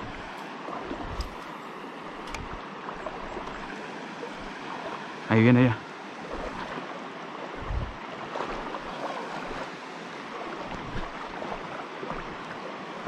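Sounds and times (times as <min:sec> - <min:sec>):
river water rushing over stones: 0:00.0 - 0:13.0
soft low thumps: 0:07.6 - 0:08.0.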